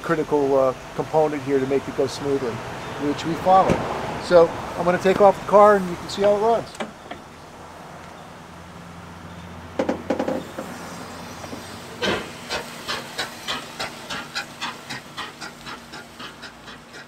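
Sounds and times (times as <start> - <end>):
steam exhaust chuffing: 10.0 - 17.0
steam hiss: 10.1 - 17.0.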